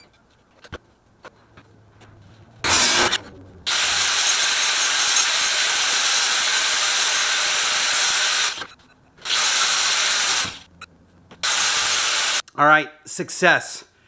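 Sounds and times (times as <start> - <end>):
power grinder grinding metal: 2.6 - 10.6.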